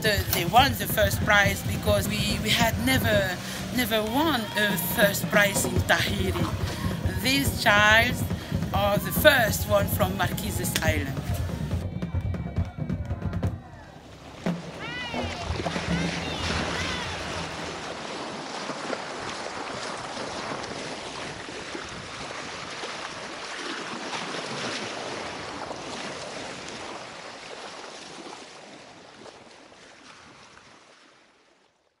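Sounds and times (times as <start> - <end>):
wind noise on microphone: 0.0 - 13.7, 19.7 - 26.7
water splashing along a hull: 0.0 - 32.0.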